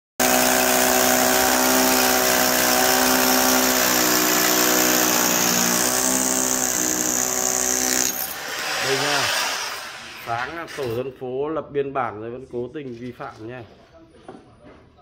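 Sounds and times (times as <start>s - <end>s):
power tool breaking through brick wall: 0.2s - 10.6s.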